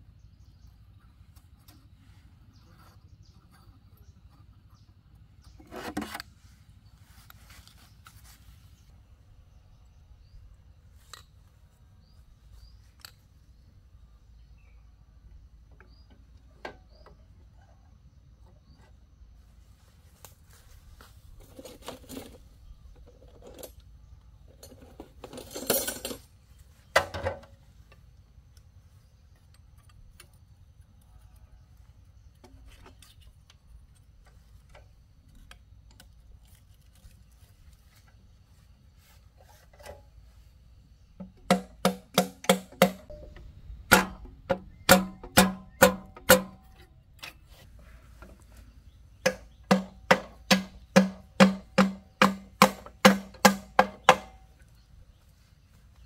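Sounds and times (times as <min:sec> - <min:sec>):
low steady hum: 0:00.0 - 0:56.0
metal tools clinking: 0:24.5 - 0:26.3
loud metallic clanks: 0:41.2 - 0:46.8.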